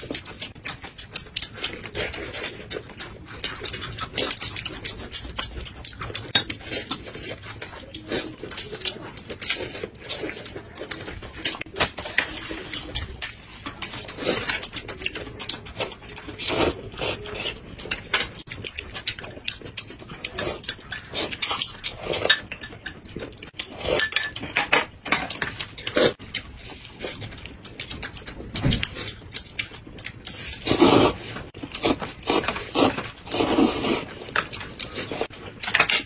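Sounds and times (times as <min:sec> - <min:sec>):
chewing and lip smacking: 0:00.0 - 0:24.5, 0:25.2 - 0:36.0
slurping noodles: 0:30.4 - 0:35.3.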